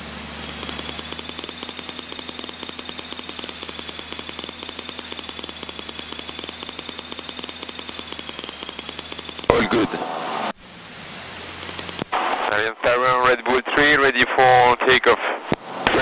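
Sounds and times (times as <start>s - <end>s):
propeller plane engine running: 0.0s - 12.3s.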